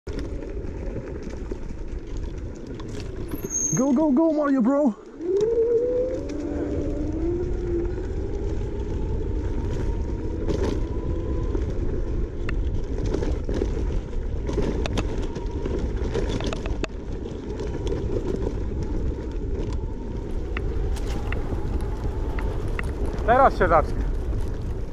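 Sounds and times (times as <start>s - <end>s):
wind on microphone: 5.1s - 24.9s.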